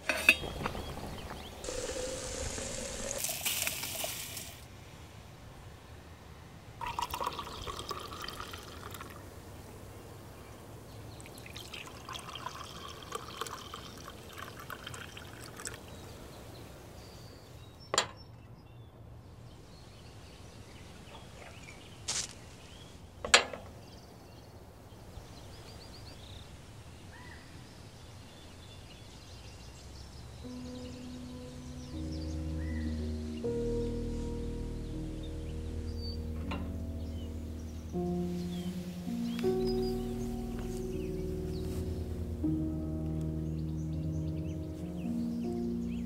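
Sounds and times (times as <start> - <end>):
liquid being poured: 0.4 - 4.6, 6.8 - 9.2, 11.2 - 15.9.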